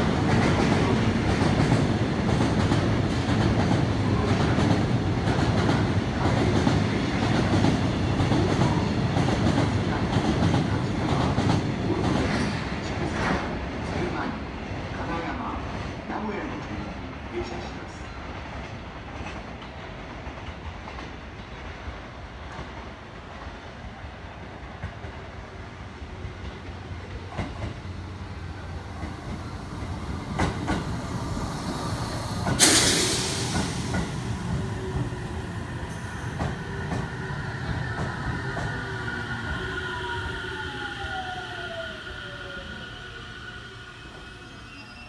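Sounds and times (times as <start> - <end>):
train rumble: 0.0 - 44.4
train brakes whine: 30.4 - 45.0
loud hiss: 31.0 - 36.1.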